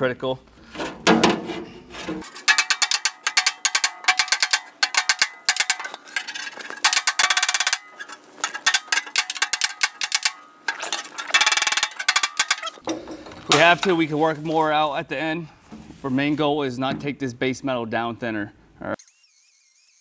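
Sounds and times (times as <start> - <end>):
hammer tapping sheet metal: 0.8 - 6.2.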